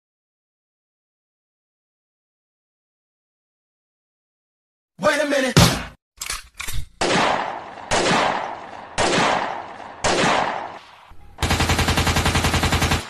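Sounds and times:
sharp gunshot-like bangs: 0:07.0 - 0:13.0.

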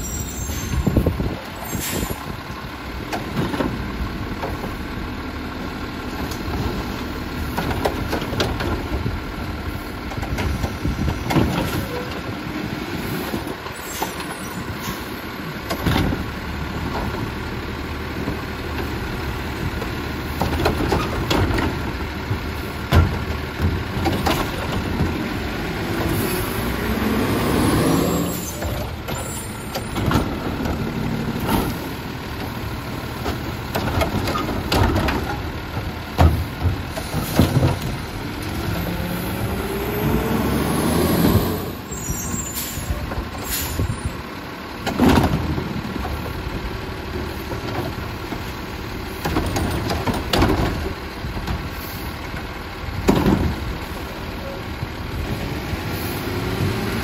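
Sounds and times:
garbage truck engine revving: 0:16.1 - 0:57.0.

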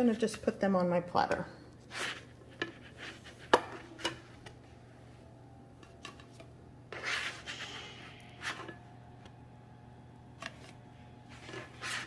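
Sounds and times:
spatula scraping griddle: 0:06.9 - 0:08.8, 0:11.3 - 0:12.0.

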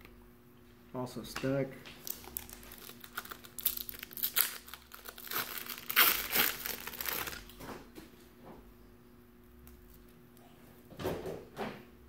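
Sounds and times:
foil wrapper crinkling and tearing: 0:02.0 - 0:07.5.

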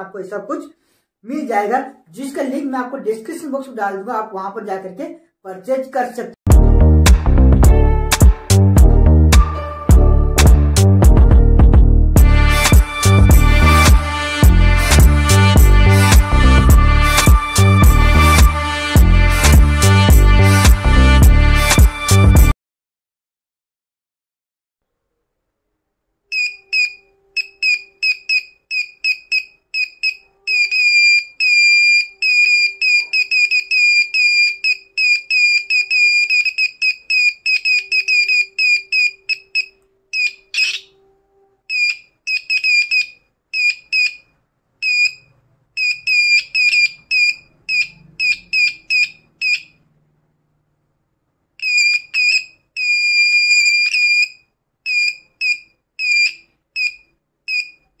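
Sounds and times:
piezo buzzer beeping high tone: 0:26.3 - 0:40.9, 0:41.7 - 0:44.2, 0:44.8 - 0:49.8, 0:51.6 - 0:57.9.

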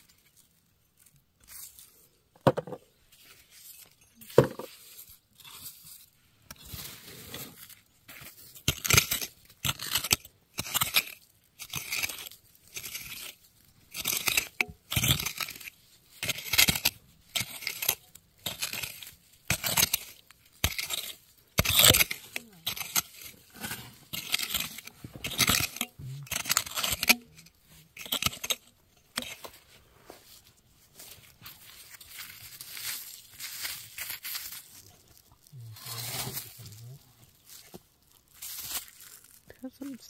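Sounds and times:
tool knocking on ground: 0:02.4 - 0:02.8, 0:04.4 - 0:04.7
hand rake scraping gravelly clay: 0:03.1 - 0:40.0
stones clinking: 0:03.7 - 0:04.8.

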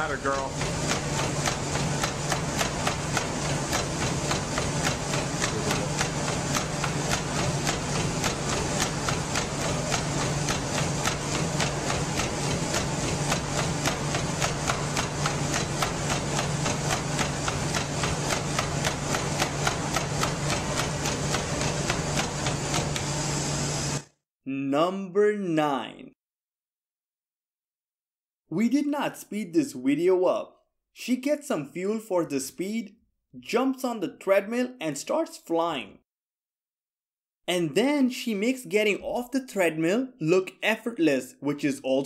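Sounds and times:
treadmill motor hum: 0:00.0 - 0:24.0
footfalls on treadmill: 0:00.6 - 0:23.1.

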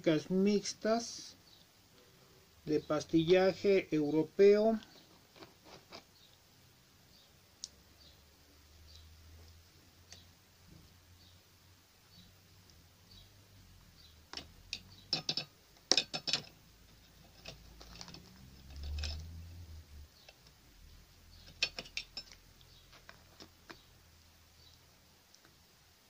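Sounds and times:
foil crinkling and crackling: 0:04.9 - 0:06.1, 0:17.7 - 0:19.0.

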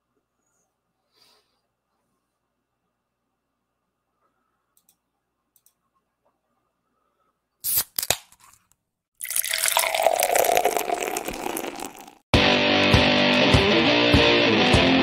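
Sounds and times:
beer pouring into glass: 0:09.2 - 0:12.2.

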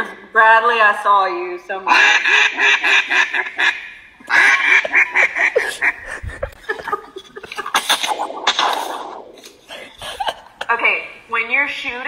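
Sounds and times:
duck call quacks: 0:01.9 - 0:06.1.

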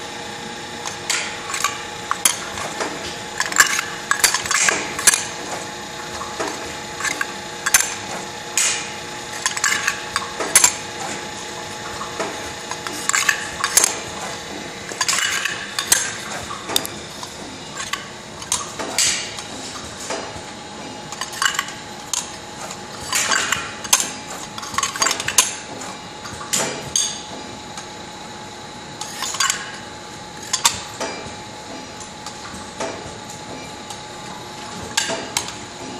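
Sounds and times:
machine hum: 0:00.0 - 0:35.9.

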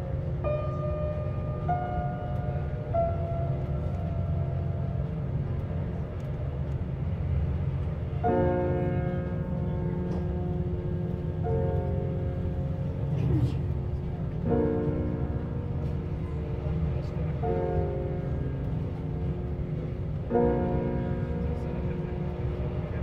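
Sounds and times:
train rumbling inside carriage: 0:00.0 - 0:23.0.

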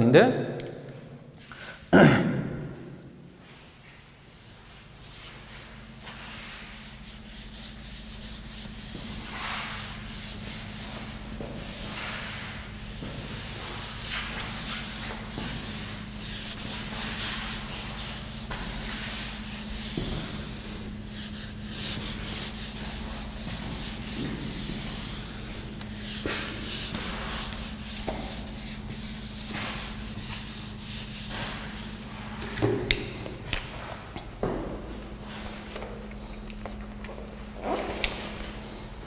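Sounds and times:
eraser wiping whiteboard: 0:04.4 - 0:33.1.

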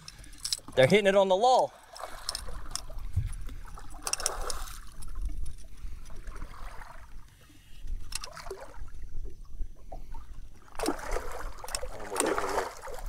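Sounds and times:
water sloshing against hull: 0:00.0 - 0:13.0
fish thrashing and splashing: 0:01.7 - 0:07.2, 0:10.6 - 0:13.0
sharp splashes: 0:10.7 - 0:13.0.

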